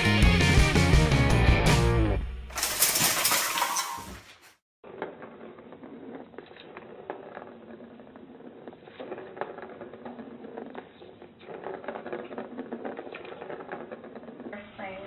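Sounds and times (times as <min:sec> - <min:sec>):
metal fireplace screen crashing: 0:02.5 - 0:04.3.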